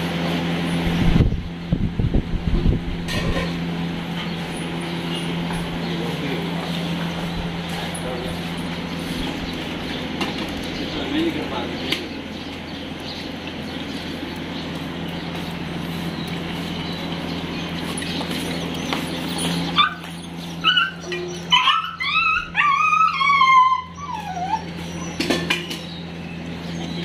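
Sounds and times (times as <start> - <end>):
steady background hum: 0.0 - 27.0
dog whining and yelping: 19.3 - 25.9.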